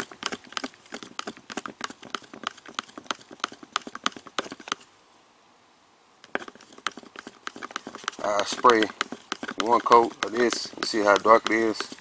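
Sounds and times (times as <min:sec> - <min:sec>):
stir stick knocking in cup: 0:06.3 - 0:12.0.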